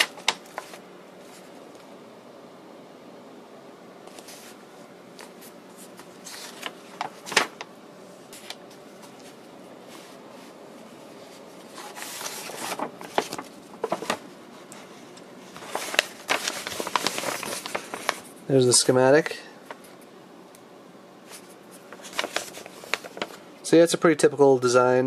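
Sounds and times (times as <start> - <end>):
paper pages rustling: 0.0 - 1.9, 4.1 - 7.7, 8.3 - 18.4, 19.6 - 20.1, 21.2 - 23.4.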